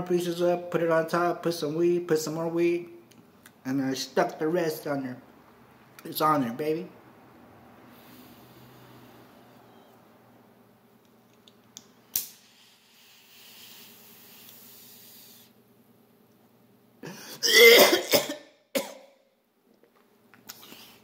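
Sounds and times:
soft hiss of pipe being lit: 12.1 - 15.6
person coughing: 17.0 - 19.1.

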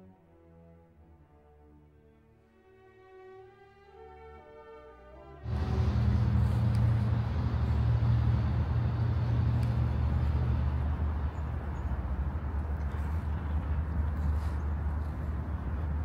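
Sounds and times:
city traffic: 5.4 - 16.0
vehicle engine rumbling: 5.5 - 16.0.

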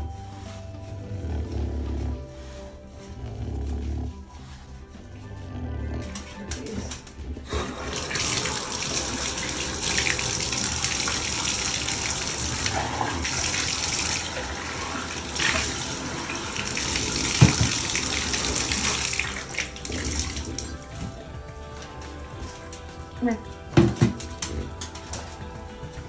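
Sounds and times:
water running into bathtub: 6.4 - 26.0.

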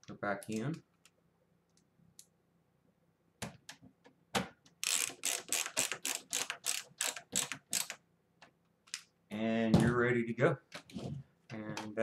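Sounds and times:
ratcheting screwdriver clicking: 4.8 - 8.0.

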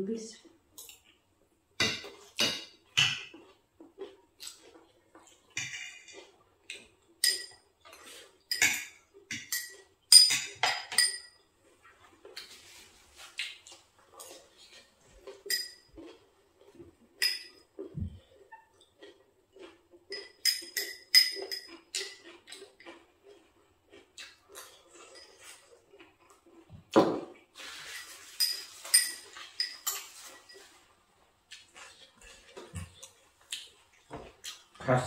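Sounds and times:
cutlery clinking on plates: 1.8 - 3.4, 5.2 - 6.3, 7.2 - 11.4, 14.2 - 16.1, 17.2 - 17.7, 20.1 - 22.6, 27.0 - 30.8.

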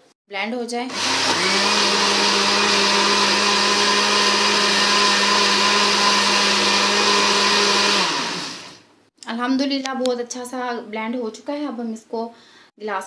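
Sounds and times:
electric blender running: 0.9 - 8.9.

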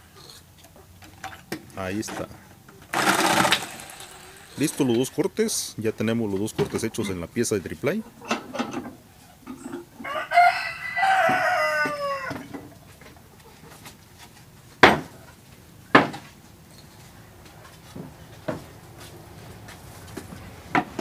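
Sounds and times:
rooster crowing: 10.0 - 12.5
sharp knocks on plywood: 16.0 - 16.2.

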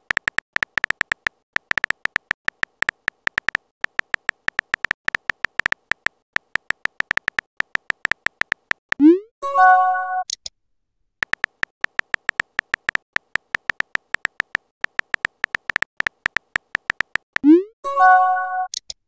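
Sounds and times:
keyboard tap clicks: 0.0 - 9.0, 11.2 - 17.4.

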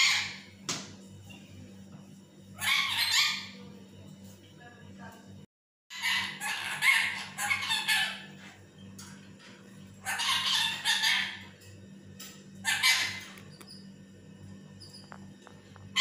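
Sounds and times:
parakeet squawking harshly: 0.0 - 0.5, 2.6 - 3.6, 5.9 - 8.3, 10.0 - 11.5, 12.6 - 13.4.

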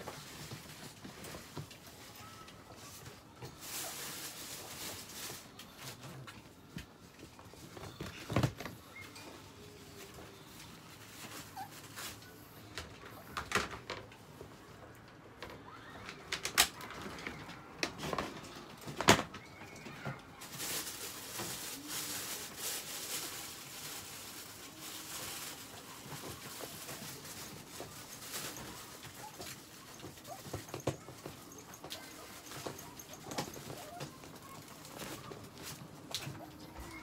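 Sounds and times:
plastic tarp and cardboard rustling: 0.0 - 14.0, 15.6 - 37.0.

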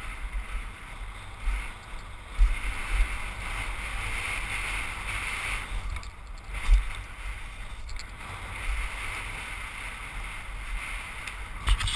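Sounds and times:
bike tyres rumbling on gravel: 0.0 - 11.9
wind on microphone: 0.0 - 11.9.

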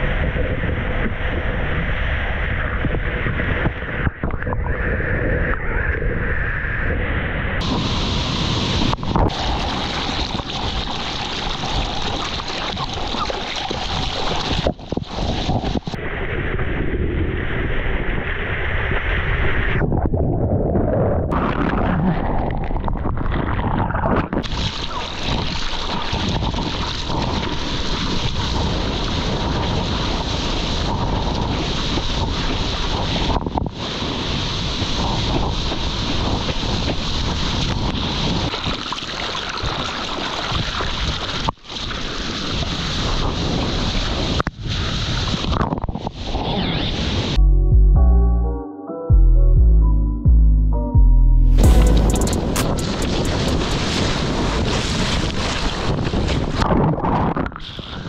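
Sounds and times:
wind buffeting microphone: 0.0 - 12.3, 12.9 - 38.8, 51.6 - 58.0.

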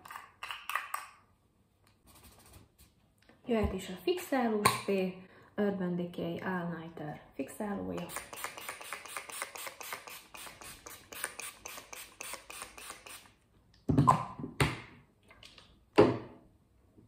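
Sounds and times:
spray bottle misting hisses: 8.1 - 13.3.

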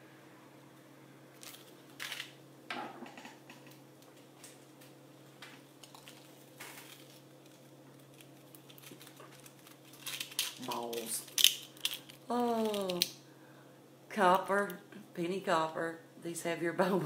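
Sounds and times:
low electrical hum: 0.0 - 17.0
jewellery clicking and rustling: 5.8 - 13.1.

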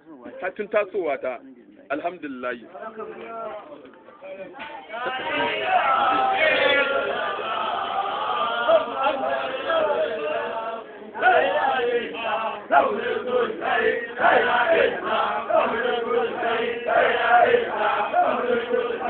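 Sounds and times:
men chanting in rhythm: 5.0 - 19.0.

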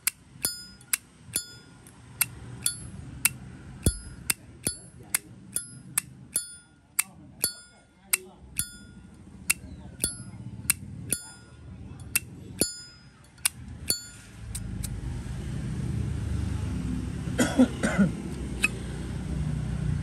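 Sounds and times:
metal clatter: 3.9 - 5.0.

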